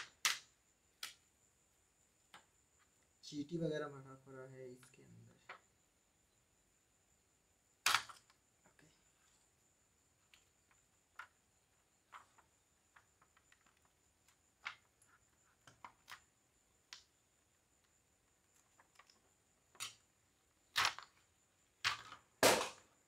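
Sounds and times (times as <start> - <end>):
sharp loud clicks: 0.0 - 1.2, 7.8 - 8.4, 21.8 - 22.9
plastic laptop parts clicking: 12.1 - 16.3, 18.5 - 20.0, 20.7 - 21.2, 21.8 - 22.2.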